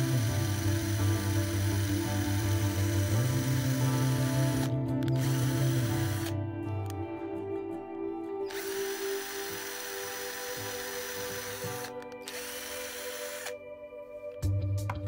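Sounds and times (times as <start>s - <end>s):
cordless drill boring into wood: 0.0s - 6.4s, 8.5s - 13.6s
background music: 0.0s - 15.0s.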